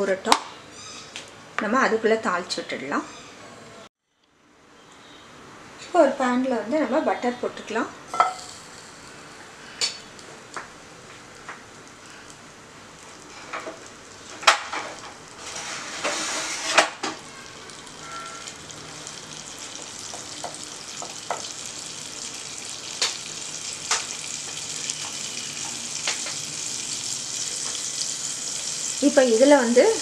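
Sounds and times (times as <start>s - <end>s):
butter sizzling in a pan: 8.2s - 30.0s.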